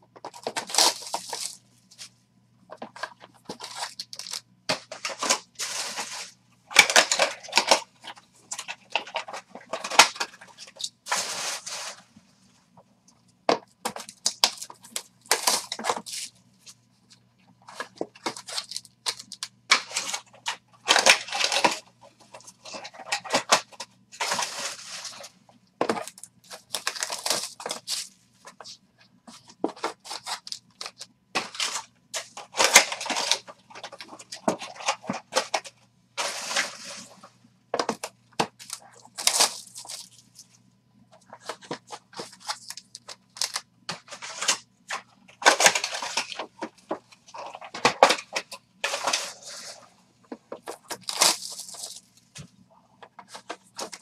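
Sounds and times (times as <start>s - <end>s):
plastic packaging crinkling and tearing: 0.3s - 1.6s, 3.0s - 12.0s, 14.0s - 16.8s, 17.7s - 28.7s, 29.4s - 37.2s, 38.0s - 40.5s, 41.2s - 49.8s, 50.5s - 52.2s
boxes clicking and tapping: 37.8s - 39.6s.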